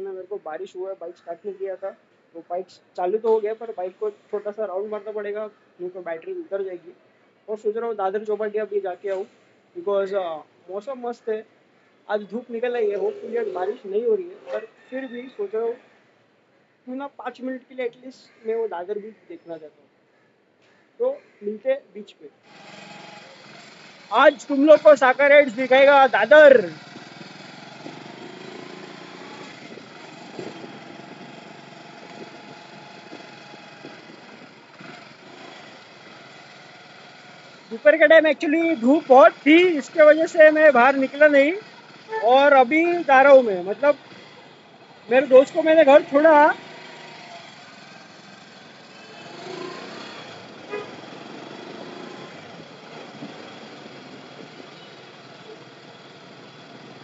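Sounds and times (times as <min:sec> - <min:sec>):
wind and road noise: 0:22.5 - 0:57.0
motorcycle engine running: 0:22.8 - 0:57.0
short horn toot: 0:50.7 - 0:51.0.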